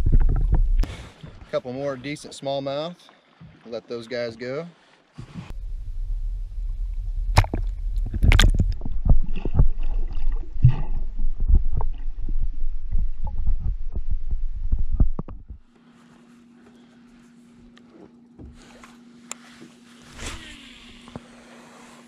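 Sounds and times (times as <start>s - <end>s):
muffled underwater rumble: 0.0s - 1.5s, 5.2s - 15.7s
underwater knocks and splashes: 0.0s - 1.5s, 6.5s - 15.7s.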